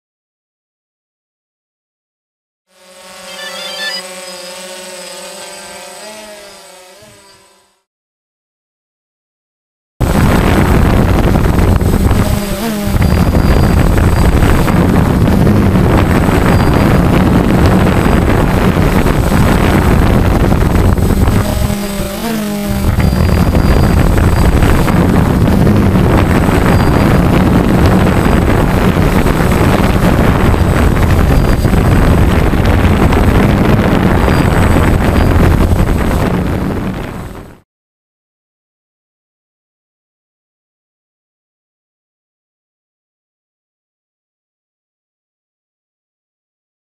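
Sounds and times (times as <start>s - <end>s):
drone propellers buzzing: 2.7s - 7.9s, 10.0s - 37.6s
wind rush: 10.0s - 37.6s.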